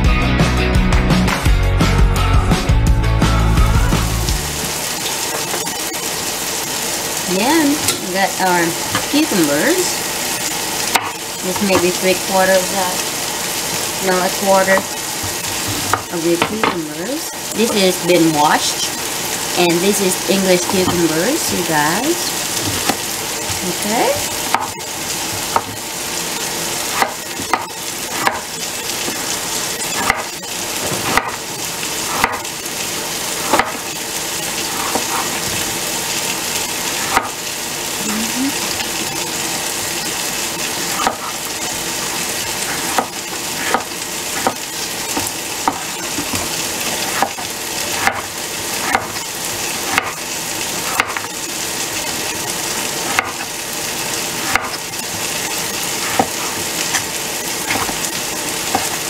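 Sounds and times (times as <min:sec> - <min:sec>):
chicken sizzling in a pan: 0:03.8 - 0:59.0
knife tapping on cutting board: 0:25.4 - 0:25.8, 0:27.0 - 0:28.5, 0:31.0 - 0:31.4, 0:32.2 - 0:32.4, 0:45.6 - 0:46.4.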